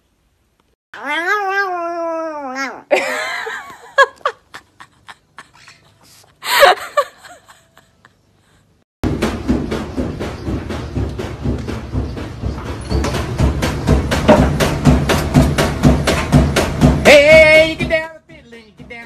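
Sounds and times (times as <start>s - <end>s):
cat yowling: 1.0s - 2.9s.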